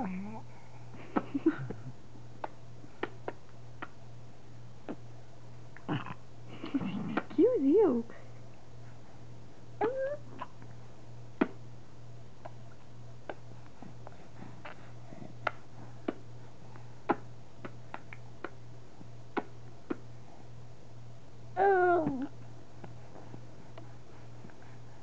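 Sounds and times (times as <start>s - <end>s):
baby smacking lips: 2.4s - 4.0s, 12.4s - 16.3s, 17.0s - 18.6s, 19.3s - 20.1s.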